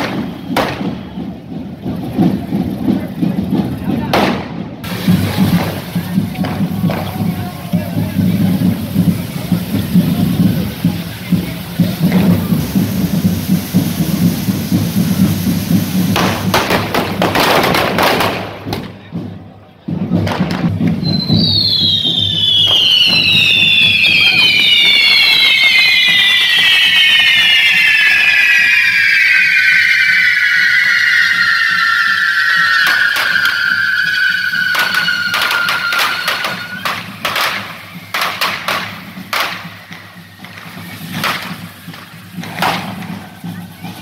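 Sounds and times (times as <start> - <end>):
firework crack: 0.0 - 44.0
fireworks hissing and whistling: 0.0 - 44.0.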